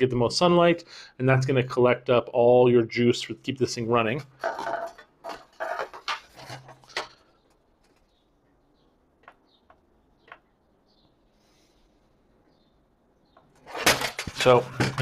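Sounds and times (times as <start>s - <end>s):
rustling and knocking on table: 4.4s - 7.2s.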